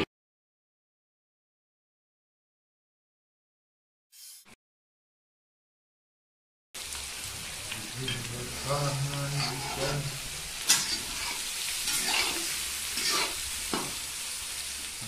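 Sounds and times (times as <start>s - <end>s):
vegetables sizzling in oil: 6.8s - 15.0s
metal spatula scraping a pan: 8.1s - 14.0s.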